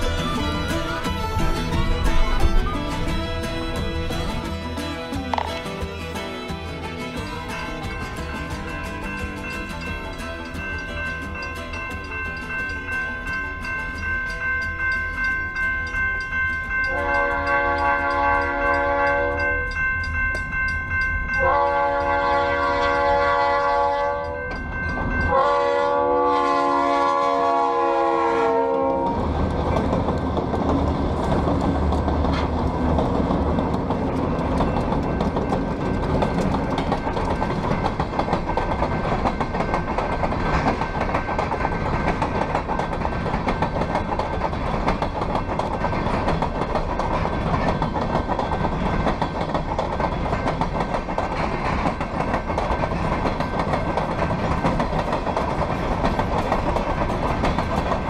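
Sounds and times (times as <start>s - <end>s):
train wheels clacking on rails: 0.0s - 26.3s, 28.8s - 58.0s
locomotive engines rumbling: 0.0s - 58.0s
locomotive air horn blasts: 16.9s - 19.6s, 21.4s - 24.4s, 25.3s - 29.2s.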